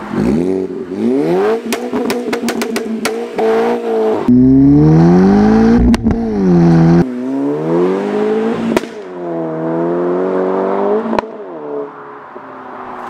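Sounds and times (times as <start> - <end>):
car engine revving hard: 3.4 - 11.2.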